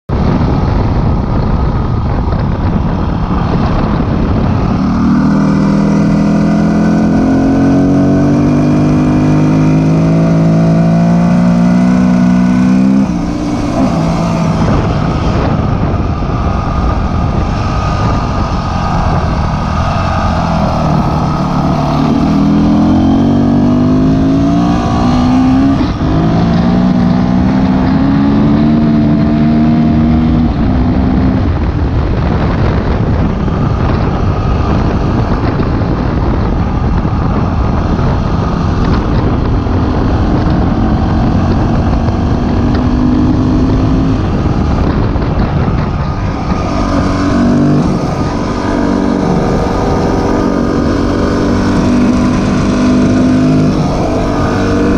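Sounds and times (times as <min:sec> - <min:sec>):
wind rumble on microphone: 0:00.1 - 0:54.9
dirt bike engine revving: 0:04.5 - 0:31.3, 0:40.7 - 0:54.9.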